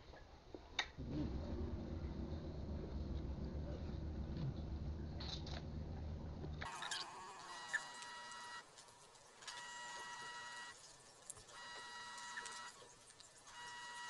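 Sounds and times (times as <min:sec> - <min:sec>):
high-pitched electronic tone: 0:06.7 - 0:08.7.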